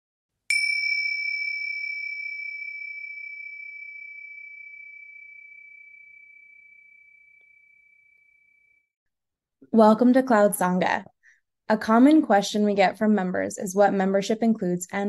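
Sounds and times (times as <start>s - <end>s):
small bell ringing: 0.5s - 8.8s.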